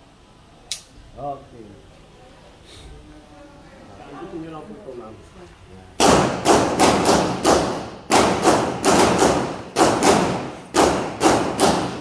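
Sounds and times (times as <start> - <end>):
handgun shots echoing: 6.0 - 12.0.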